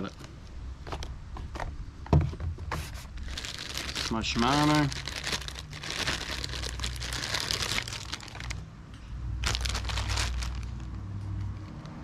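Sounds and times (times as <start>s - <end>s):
packaging crinkling: 3.2s - 8.6s, 9.4s - 11.0s.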